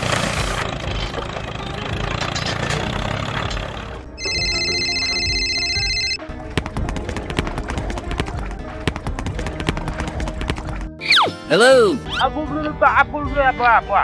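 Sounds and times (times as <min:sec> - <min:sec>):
music: 0:00.2 - 0:14.0.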